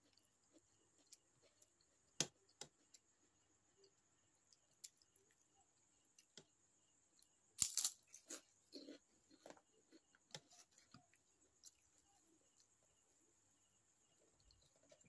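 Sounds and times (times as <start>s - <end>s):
person chewing: 7.6s - 11.9s.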